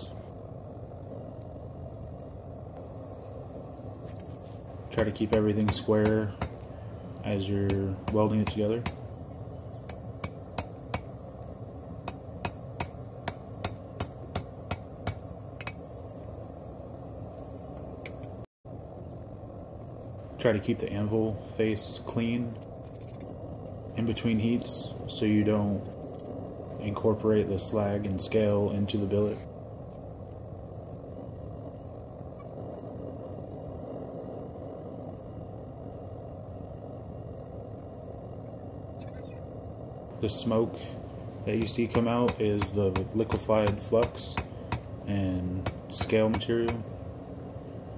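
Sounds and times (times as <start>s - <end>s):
gas forge roaring: 0.0s - 9.3s, 39.6s - 47.9s.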